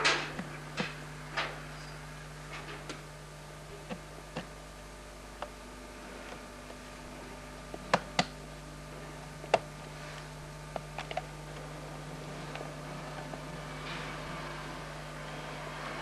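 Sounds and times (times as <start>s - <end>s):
steady low hum: 0.0s - 16.0s
sharp clicks and knocks: 3.8s - 4.6s.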